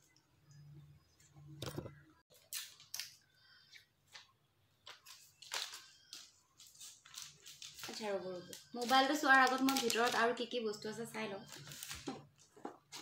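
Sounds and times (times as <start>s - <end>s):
plastic packaging crinkling: 4.8s - 10.8s, 11.4s - 13.0s.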